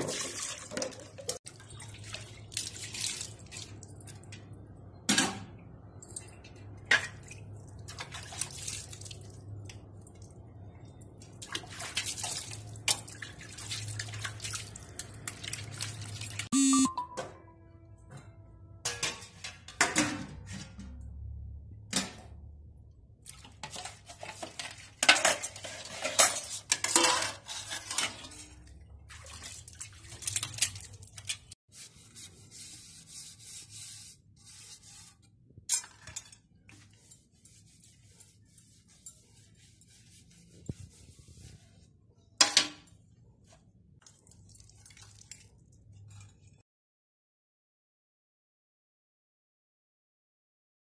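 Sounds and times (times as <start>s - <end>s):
scrubbing dishes: 0.0s - 4.5s, 23.2s - 46.6s
metal dishes clattering: 18.8s - 21.0s, 23.6s - 28.7s.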